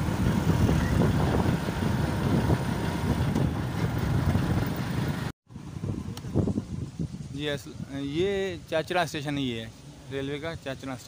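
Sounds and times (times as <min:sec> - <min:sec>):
car engine and road noise: 0:00.0 - 0:06.2.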